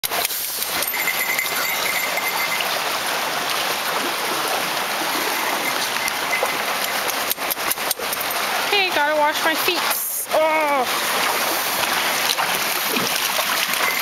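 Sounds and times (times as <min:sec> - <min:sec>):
creek rushing over rocks: 0:00.0 - 0:14.0.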